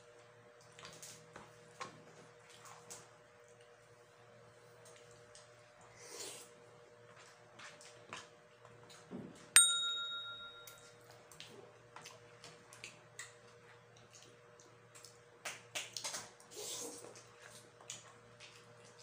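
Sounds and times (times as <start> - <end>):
bright bell ding: 9.6 - 11.0
mouth sounds of eating: 15.9 - 19.0.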